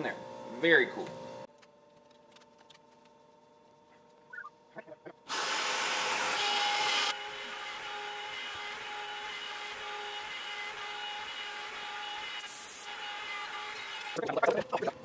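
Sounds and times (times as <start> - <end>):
router whining while cutting wood: 5.2 - 14.7.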